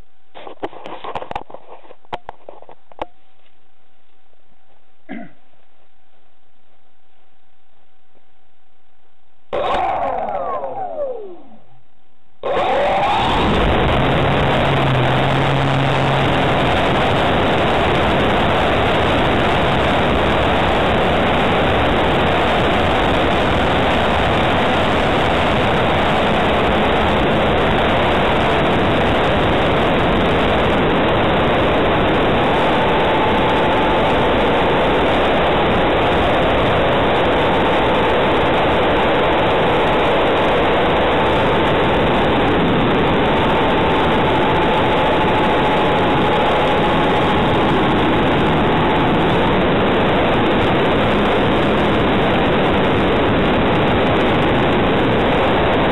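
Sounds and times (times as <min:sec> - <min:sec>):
faint steady whine: 0:00.0 - 0:55.9
wind rush and motor noise: 0:12.4 - 0:55.9.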